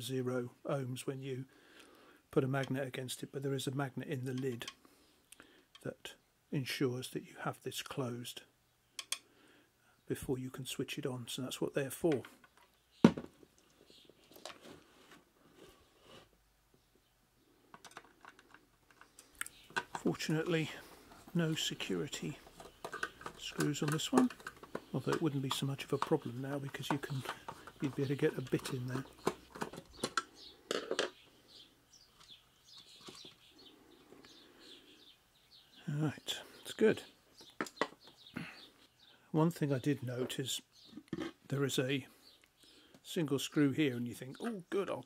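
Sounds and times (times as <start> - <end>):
small birds chirping: 0.6 - 45.0
plastic plate handling: 12.0 - 16.4, 17.7 - 31.2, 32.2 - 33.4, 37.4 - 38.3, 40.2 - 41.5
plastic base clicks and knocks: 17.7 - 20.6, 22.4 - 31.2.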